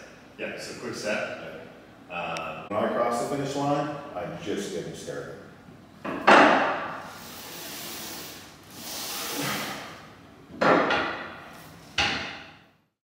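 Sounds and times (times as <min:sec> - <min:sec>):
gym machine noisy bursts: 0:06.9 - 0:10.1.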